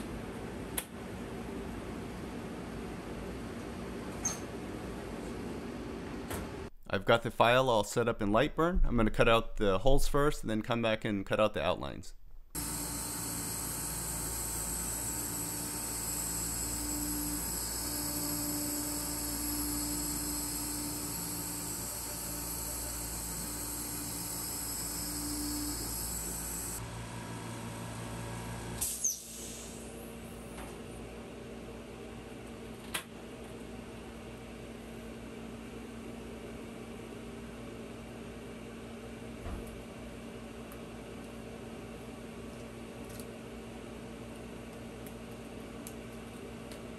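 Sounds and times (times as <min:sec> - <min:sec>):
fans hissing and humming: 0:00.0 - 0:12.0, 0:12.6 - 0:46.9
motor whine: 0:12.6 - 0:29.2.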